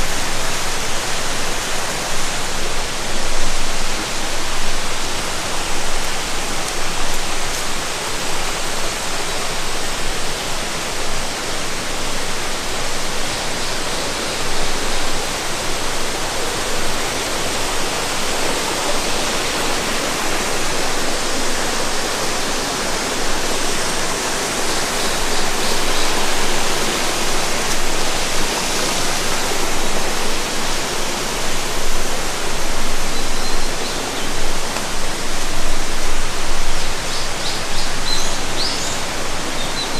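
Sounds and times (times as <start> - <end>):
water flowing: 0.0 - 39.9.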